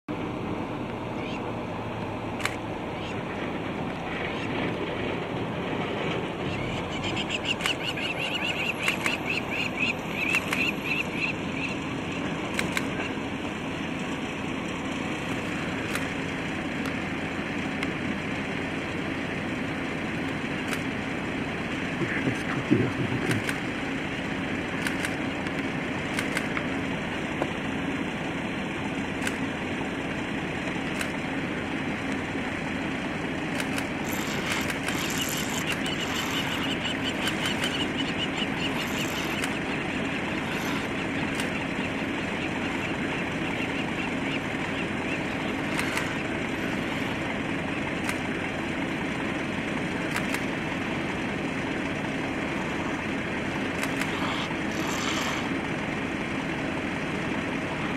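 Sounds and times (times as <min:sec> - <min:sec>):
vehicle engine idling: 0:00.1 - 0:57.9
sharp clicks: 0:02.4 - 0:02.6, 0:07.4 - 0:11.4, 0:12.5 - 0:13.1, 0:15.3 - 0:16.2, 0:20.2 - 0:20.9, 0:23.2 - 0:23.7, 0:24.8 - 0:26.7, 0:29.2 - 0:29.4, 0:30.9 - 0:31.2, 0:33.5 - 0:38.0, 0:38.6 - 0:39.7, 0:40.4 - 0:41.7, 0:45.6 - 0:46.3, 0:48.0 - 0:48.3, 0:50.1 - 0:50.5, 0:53.7 - 0:55.4.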